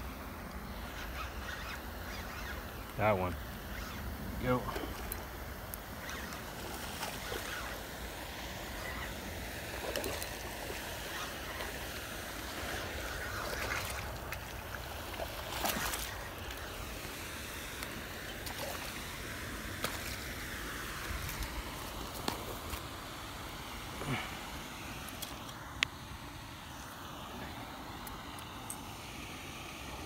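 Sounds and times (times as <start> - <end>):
open-air hiss and low rumble: 0.0 - 30.0.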